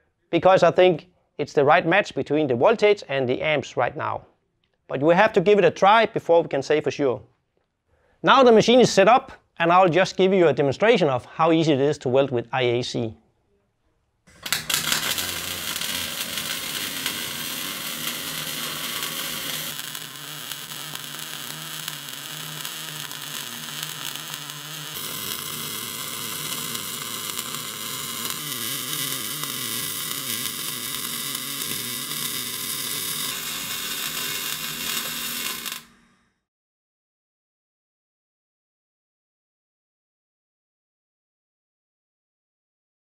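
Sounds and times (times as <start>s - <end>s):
welding arc hissing: 14.3s - 36.2s.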